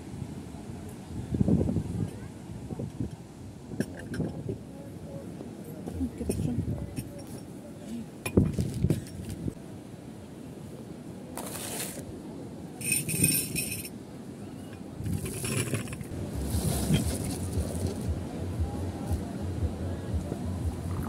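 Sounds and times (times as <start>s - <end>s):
tea glasses clinking: 12.8s - 13.9s
low rumble: 16.1s - 21.0s.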